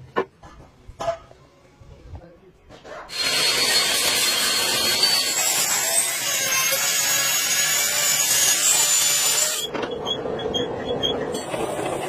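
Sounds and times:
angle grinder grinding metal: 3.1 - 9.7
die grinder grinding: 3.1 - 9.7.

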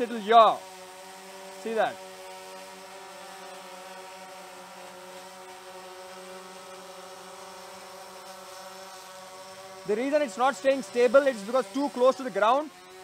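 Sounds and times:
drone propellers buzzing: 0.0 - 13.0.

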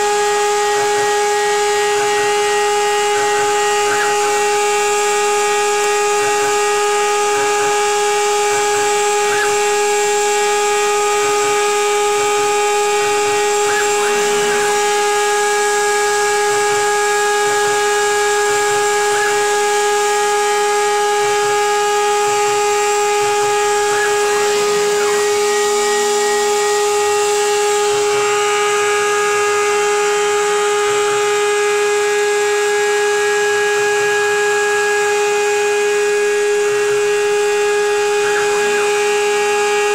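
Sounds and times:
dust extraction hiss: 0.0 - 39.9
router spindle whine: 0.0 - 39.9.

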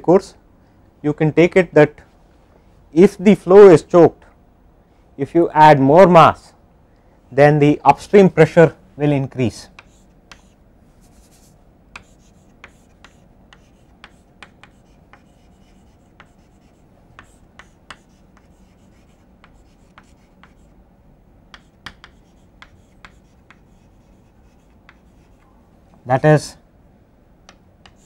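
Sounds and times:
room hiss: 0.0 - 28.0
pen writing on paper: 9.8 - 20.7, 21.6 - 25.4.

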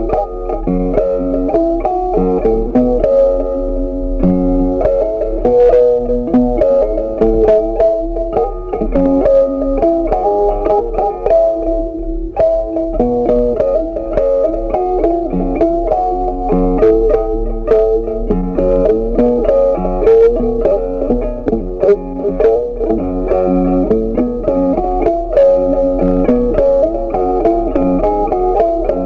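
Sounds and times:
plucked guitar run: 0.0 - 29.0.

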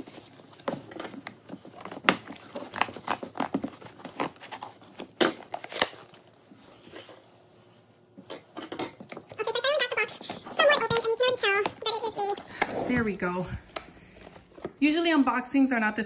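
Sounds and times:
scissors cutting cardboard: 0.0 - 6.2
cardboard tearing: 0.0 - 7.2.

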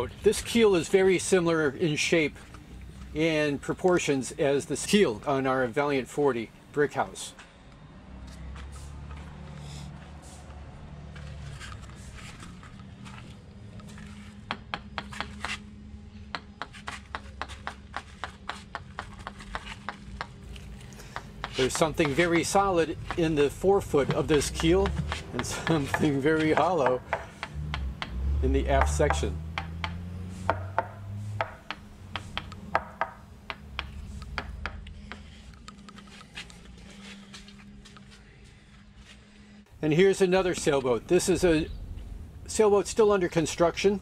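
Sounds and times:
hand tool tapping fibreglass: 16.3 - 35.3.

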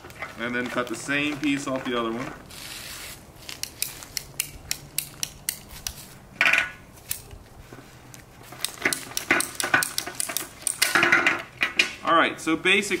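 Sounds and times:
pipe cutter clicking: 8.6 - 11.0.

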